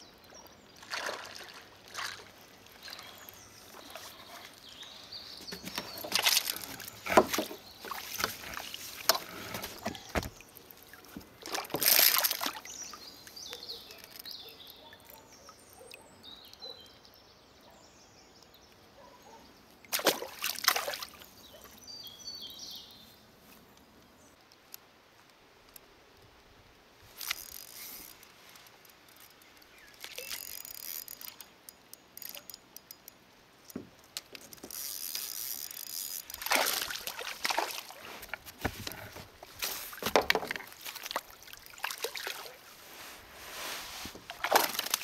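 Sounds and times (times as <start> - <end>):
water splashing and sloshing: 0.4 - 14.3, 19.8 - 21.7, 33.8 - 45.0.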